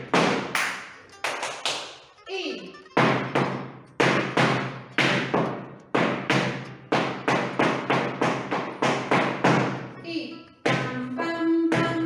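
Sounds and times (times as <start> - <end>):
shoes stamping on hard floor: 0.0 - 0.6, 3.0 - 9.9, 10.6 - 11.0, 11.7 - 12.0.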